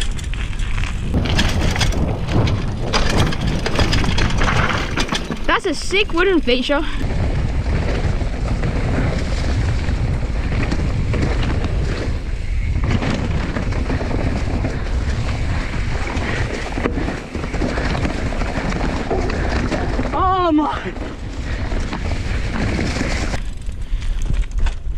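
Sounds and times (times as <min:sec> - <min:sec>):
bike rattling: 0:00.0 - 0:24.9
bike tyres rumbling on dirt: 0:00.0 - 0:24.9
wind rushing over microphone: 0:00.0 - 0:24.9.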